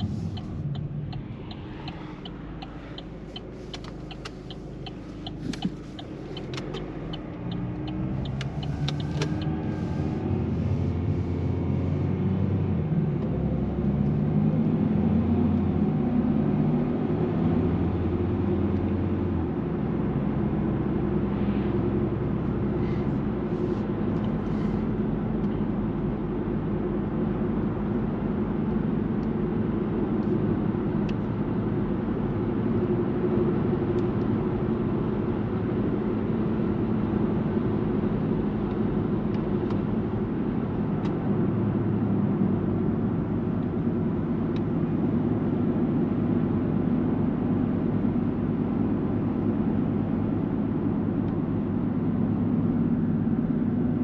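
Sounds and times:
tyre and road noise: 0:00.0 - 0:12.3
car engine drone: 0:00.0 - 0:54.0.

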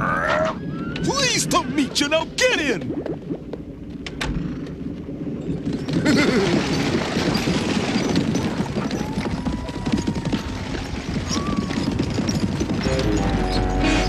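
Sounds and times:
horses' hooves clip-clopping: 0:04.4 - 0:14.0.

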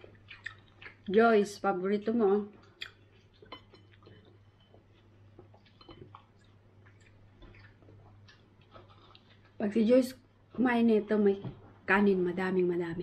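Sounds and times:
person chewing: 0:00.0 - 0:01.2, 0:02.6 - 0:09.6.

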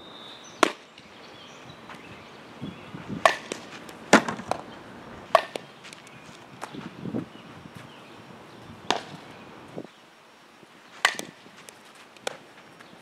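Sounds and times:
softball cracking into gloves: 0:03.2 - 0:04.7, 0:08.9 - 0:09.2, 0:11.0 - 0:12.4.

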